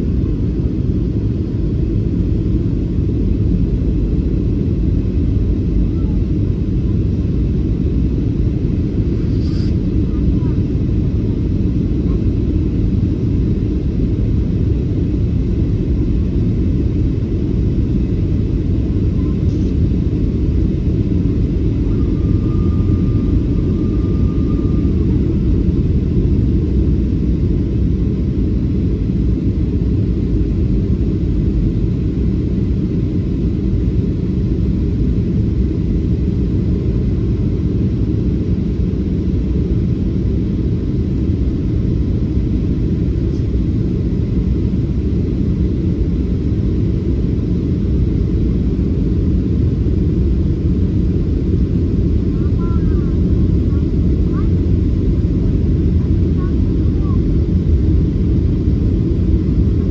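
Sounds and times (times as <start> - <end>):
airliner cabin engine rumble: 0.0 - 59.9
faint high steady tone: 21.8 - 25.1.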